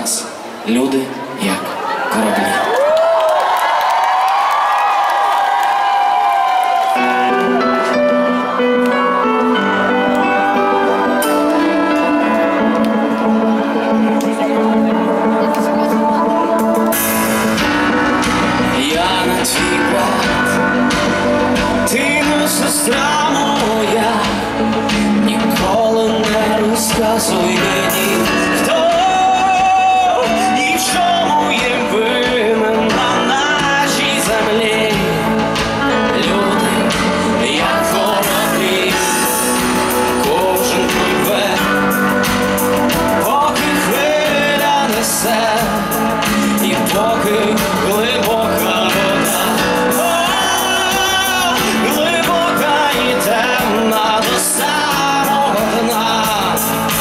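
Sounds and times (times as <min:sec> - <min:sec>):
drums: 0:03.4 - 0:57.0
keyboards: 0:03.9 - 0:57.0
bass guitar: 0:07.0 - 0:57.0
male vocal singing: 0:18.7 - 0:42.4, 0:43.0 - 0:57.0.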